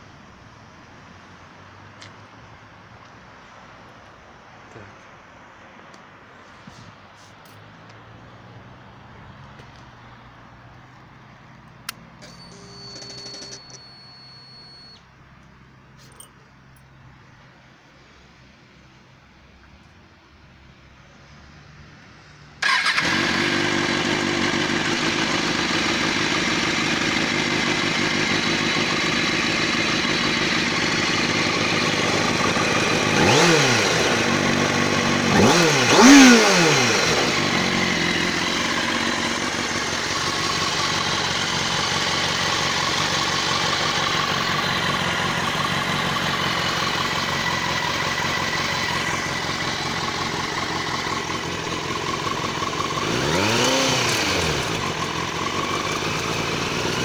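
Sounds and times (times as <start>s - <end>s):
motorcycle engine starting: 11.9s - 15.0s, 22.6s - 57.0s
throttle blips: 12.2s - 15.0s
motorcycle engine idling: 22.6s - 36.2s, 36.8s - 57.0s.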